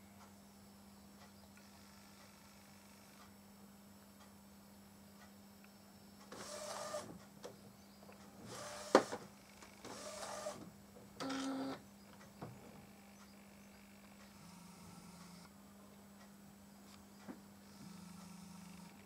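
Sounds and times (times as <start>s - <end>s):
steady low hum: 0.0s - 19.0s
printer motor whirring: 6.3s - 7.2s, 8.3s - 11.8s, 12.8s - 15.5s, 17.7s - 19.0s
sharp printer click: 8.4s - 9.3s, 9.9s - 10.6s, 11.2s - 11.8s.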